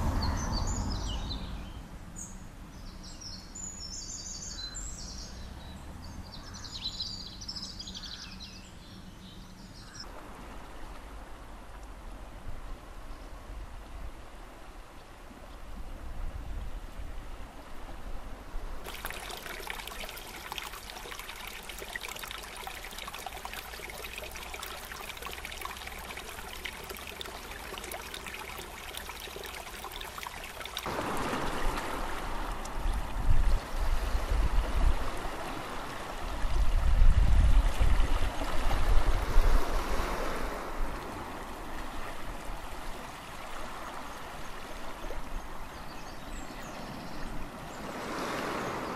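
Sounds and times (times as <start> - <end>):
stream trickling over rocks: 18.8 - 48.9.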